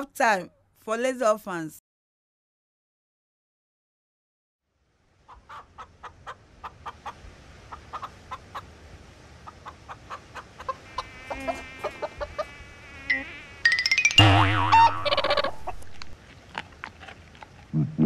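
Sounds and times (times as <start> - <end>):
hen clucking: 5.3 - 8.7, 9.4 - 13.4, 14.4 - 16.2
higher wavering bird calls: 14.6 - 15.8.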